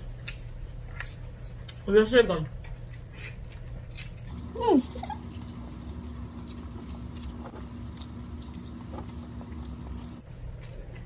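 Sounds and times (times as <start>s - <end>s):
people chewing bread: 0.0s - 11.0s
steady low hum: 4.2s - 11.0s.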